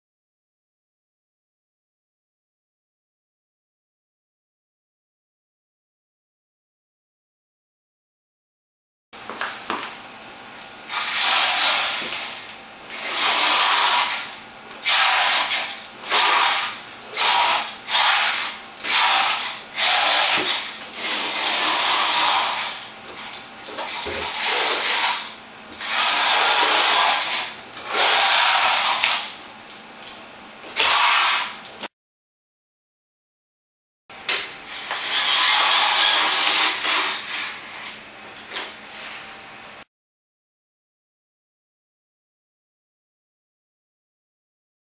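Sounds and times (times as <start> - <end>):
robot motors whirring: 10.9 - 14.2, 14.8 - 25.2, 25.8 - 29.3, 34.7 - 37.8.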